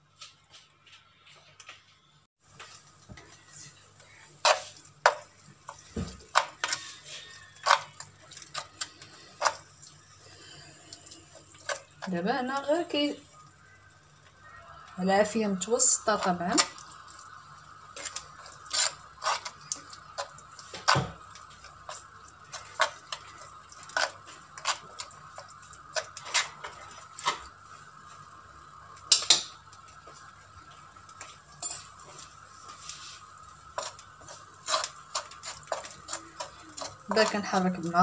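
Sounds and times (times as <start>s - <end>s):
faint steady hum: 0.7s - 38.0s
spoon scraping clay pot: 3.5s - 9.7s, 18.0s - 27.0s, 31.8s - 38.0s.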